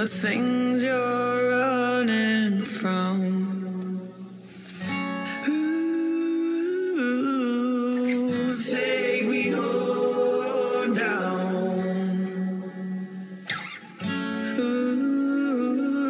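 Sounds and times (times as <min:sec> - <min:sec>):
voices singing in harmony: 0:06.6 - 0:13.4.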